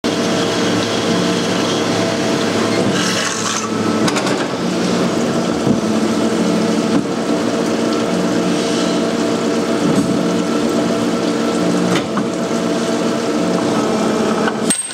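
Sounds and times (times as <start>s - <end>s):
metal-cutting saw cutting steel: 2.6s - 3.9s.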